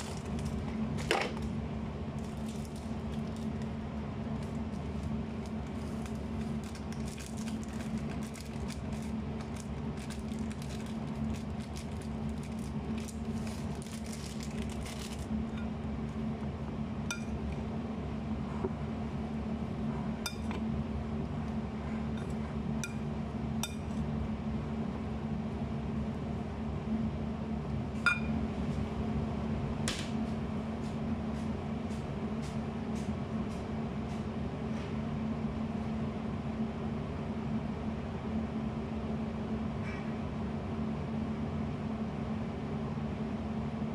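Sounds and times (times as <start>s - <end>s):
steady low hum: 0.0s - 43.9s
plastic bag crinkling: 2.2s - 3.7s, 4.3s - 15.4s
clinks against glass bowl: 20.2s - 20.5s, 28.1s - 28.4s.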